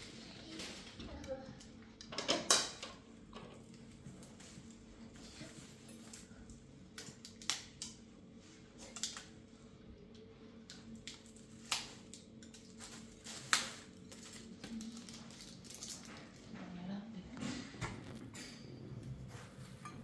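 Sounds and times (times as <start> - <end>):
plates and spoons clinking: 19.7 - 20.0.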